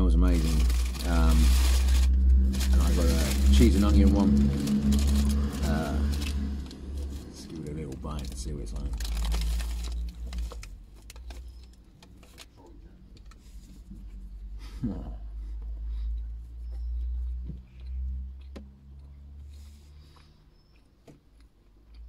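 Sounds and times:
low rumble: 0.0s - 11.8s
paper bag crinkling: 0.0s - 12.8s
person humming: 14.7s - 15.3s
person chewing crunchy pastry: 15.9s - 22.0s.

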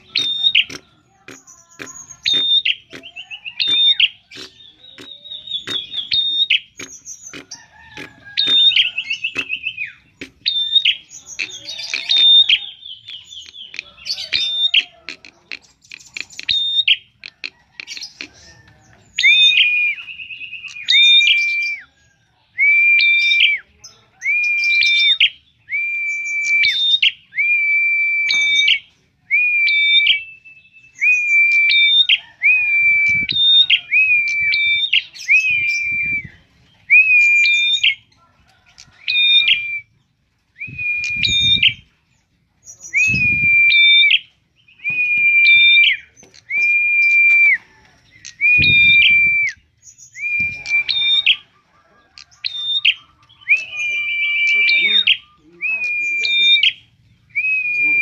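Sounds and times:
bird chips: 0.0s - 21.9s
bird whistling song phrase: 19.2s - 21.9s, 22.6s - 38.0s, 40.6s - 41.8s, 42.8s - 51.5s, 52.5s - 58.0s.

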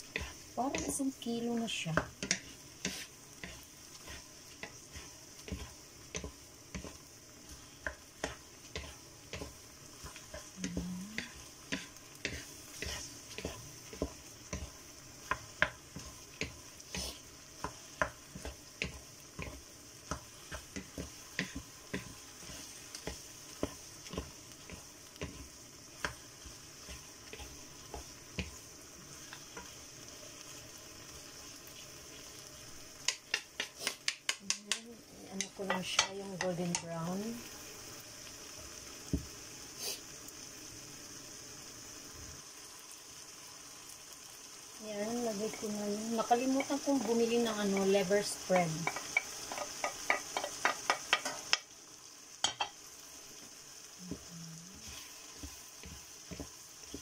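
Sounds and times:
wooden spatulas scraping a pan: 0.0s - 1.1s, 2.0s - 26.2s, 26.8s - 28.6s, 45.5s - 51.5s, 54.7s - 57.0s
meat sizzling in a pan: 0.0s - 57.0s.

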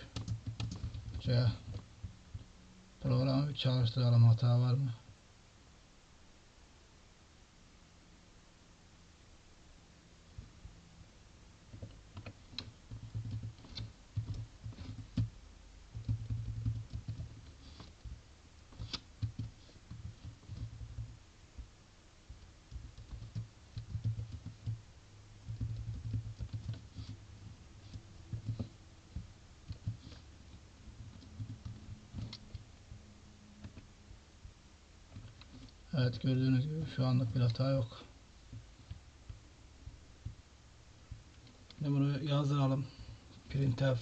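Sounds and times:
typing on computer keyboard: 0.0s - 2.4s, 11.8s - 15.3s, 15.9s - 21.2s, 22.3s - 24.8s, 25.4s - 27.2s, 27.8s - 30.2s, 31.0s - 32.7s.

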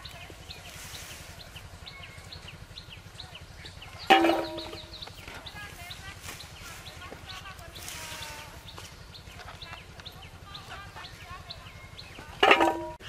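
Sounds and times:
birds chirping: 0.0s - 13.0s
potato clinking in a metal bowl: 4.1s - 4.9s, 12.4s - 13.0s.

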